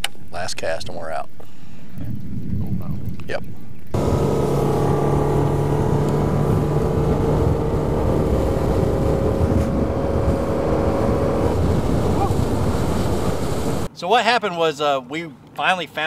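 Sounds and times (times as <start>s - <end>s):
outboard motor droning: 4.0s - 13.9s
wind and water rushing: 4.0s - 13.9s.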